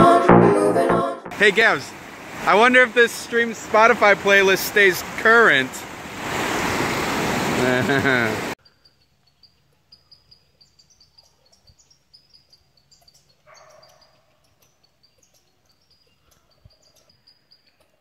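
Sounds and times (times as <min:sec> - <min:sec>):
squirrels squeaking: 0:08.6 - 0:18.0.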